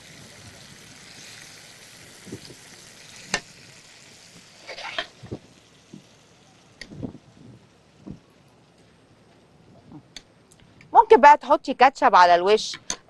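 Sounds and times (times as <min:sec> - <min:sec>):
sausage sizzling in a pan: 0:00.0 - 0:08.5.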